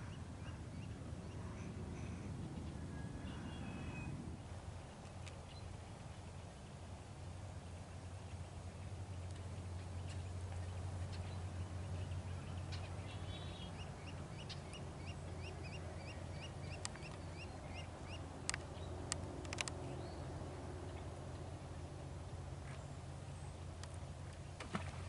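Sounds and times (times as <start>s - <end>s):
steady low rumble: 0.0s - 25.0s
sharp clicks: 18.4s - 19.8s.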